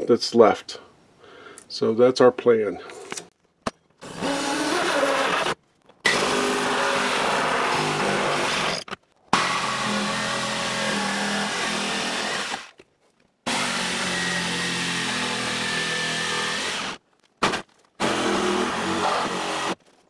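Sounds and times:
jigsaw cutting wood: 0:04.0 - 0:12.8, 0:13.4 - 0:19.8
reciprocating saw cutting: 0:13.5 - 0:19.8.

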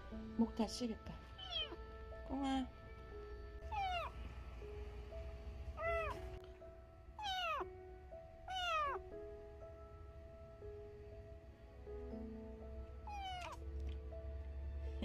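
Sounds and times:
kitten meowing: 0:01.4 - 0:01.8, 0:03.7 - 0:04.2, 0:05.8 - 0:06.2, 0:07.2 - 0:07.6, 0:08.5 - 0:09.0, 0:13.0 - 0:13.7.

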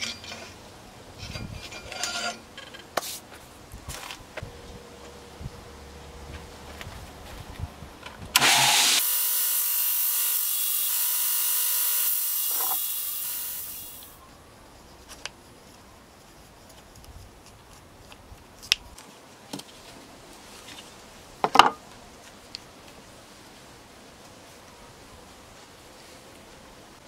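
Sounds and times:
bench power tool running: 0:08.4 - 0:14.1.

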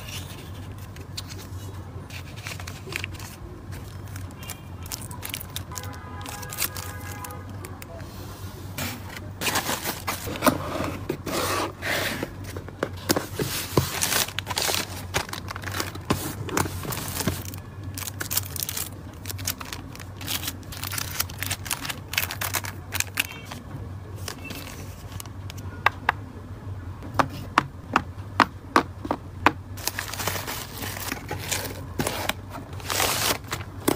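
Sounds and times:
plastic packaging crinkling: 0:00.0 - 0:07.4, 0:09.4 - 0:10.5, 0:12.4 - 0:23.6, 0:24.2 - 0:25.6, 0:29.8 - 0:33.9.

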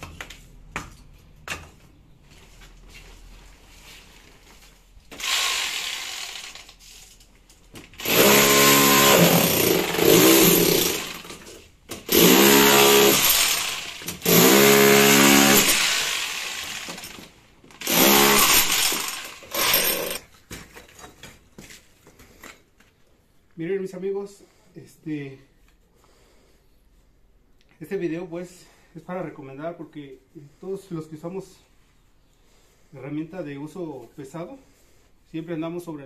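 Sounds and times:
rotary hammer breaking wall: 0:08.0 - 0:20.3.

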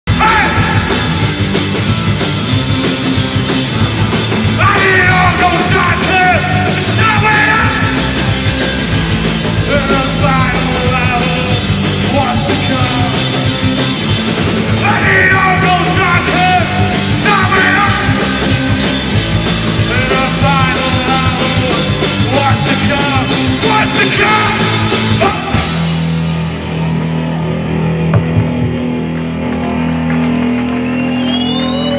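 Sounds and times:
drums: 0:00.0 - 0:31.9
electric guitars: 0:00.1 - 0:31.9
person singing: 0:04.4 - 0:08.2, 0:09.6 - 0:13.4, 0:14.7 - 0:18.4, 0:19.8 - 0:25.8.

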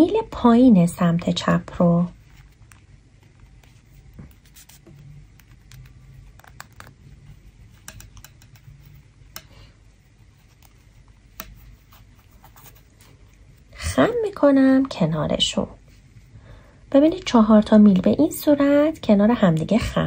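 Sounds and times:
knitting needles clicking: 0:05.4 - 0:09.7.

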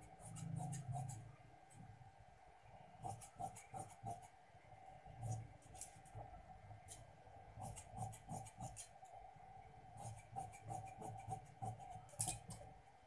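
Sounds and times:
scissors cutting fabric: 0:00.3 - 0:01.2, 0:10.0 - 0:12.6.

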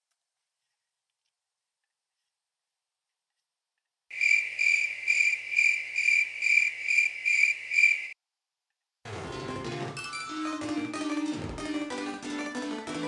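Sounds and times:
cricket chirping: 0:04.1 - 0:08.2.

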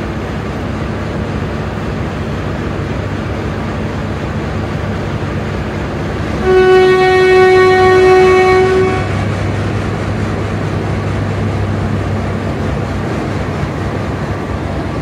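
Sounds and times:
diesel train engine rumble: 0:00.0 - 0:15.0
train horn: 0:06.4 - 0:09.3.

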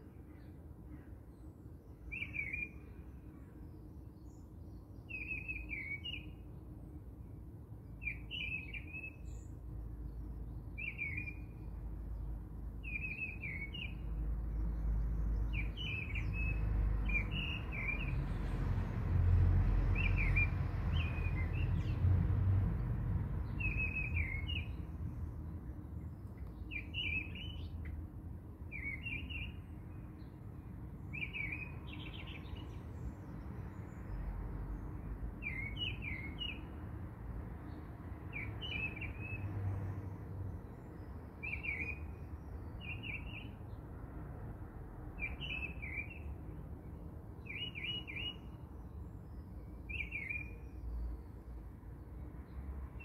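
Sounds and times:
small birds chirping: 0:23.4 - 0:25.2, 0:26.0 - 0:28.0, 0:28.7 - 0:30.4, 0:31.1 - 0:34.2, 0:34.8 - 0:36.8, 0:40.6 - 0:43.8, 0:47.4 - 0:51.3.

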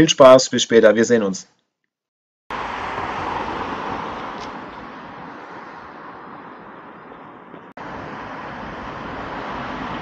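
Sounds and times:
road traffic rush: 0:02.5 - 0:10.0.

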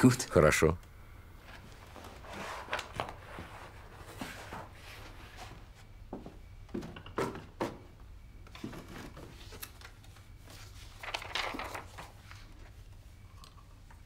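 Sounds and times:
paper rustling: 0:01.4 - 0:05.6, 0:08.6 - 0:12.9
footsteps: 0:03.3 - 0:07.9.

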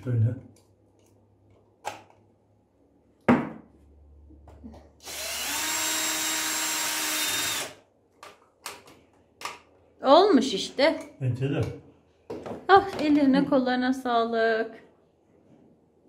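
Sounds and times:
cordless drill driving screws: 0:05.0 - 0:07.8.

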